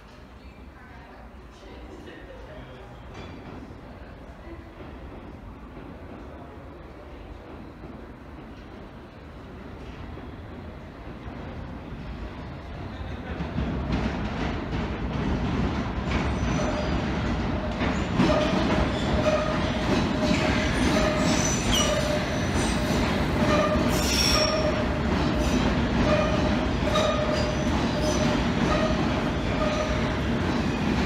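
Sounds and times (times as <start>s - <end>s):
train wheels rumbling on rail: 2.8s - 31.0s.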